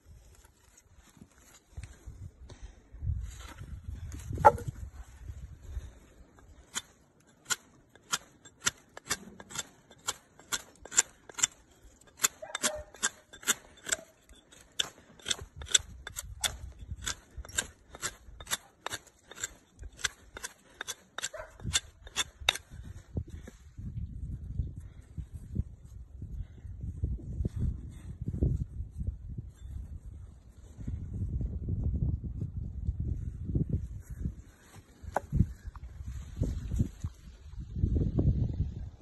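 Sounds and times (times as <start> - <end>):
knife shaving wooden stick: 6.5 - 22.7.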